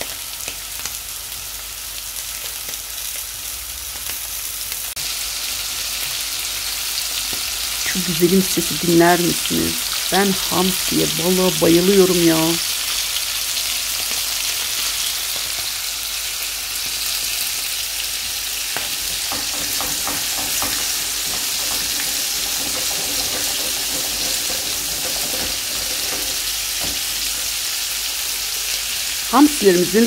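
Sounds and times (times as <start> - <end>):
fish sizzling in hot oil: 0.0 - 30.0.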